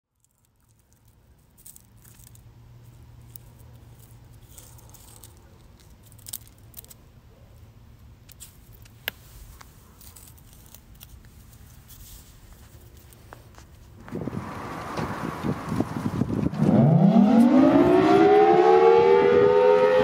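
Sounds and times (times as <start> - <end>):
small clicks and rustles: 0.1 - 14.2.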